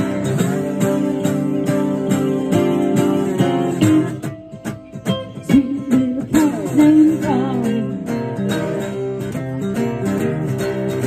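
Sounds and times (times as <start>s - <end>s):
guitars strumming: 0.0s - 11.0s
woman singing: 5.2s - 8.7s.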